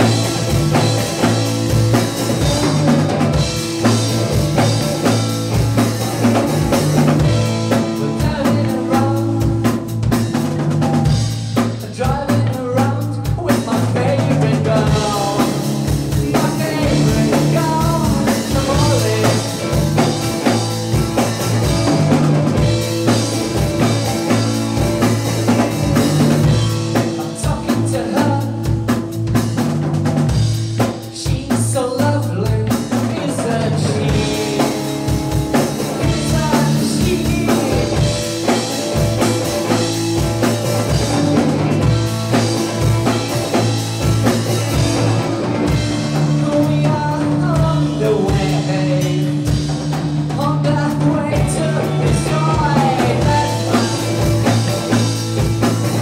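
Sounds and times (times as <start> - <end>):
drum kit: 0.0 - 56.0
electric bass: 0.0 - 56.0
electric guitar: 0.0 - 56.0
person singing: 7.7 - 9.8, 11.8 - 22.0, 27.0 - 28.8, 31.1 - 39.0, 46.1 - 49.6, 50.3 - 55.0.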